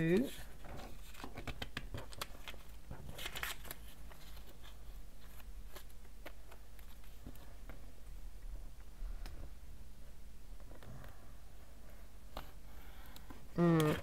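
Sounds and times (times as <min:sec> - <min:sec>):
paper rustling: 0:00.2 - 0:07.8.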